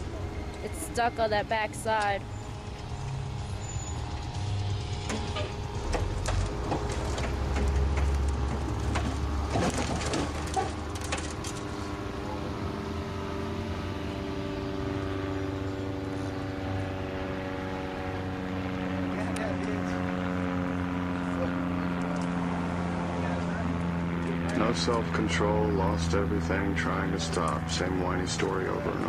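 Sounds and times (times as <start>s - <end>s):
vehicle engine running: 0.0s - 29.0s
sharp knocks and cracks: 5.1s - 11.7s.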